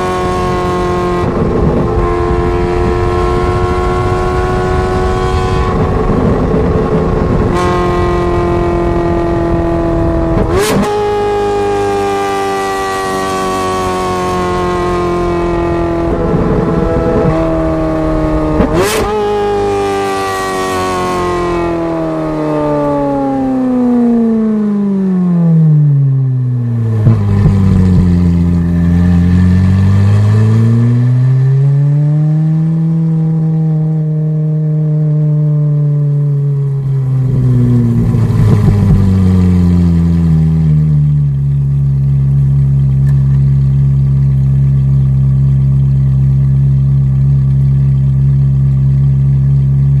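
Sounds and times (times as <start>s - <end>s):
sports car engine revving: 0.0s - 50.0s
exhaust crackles: 36.3s - 50.0s.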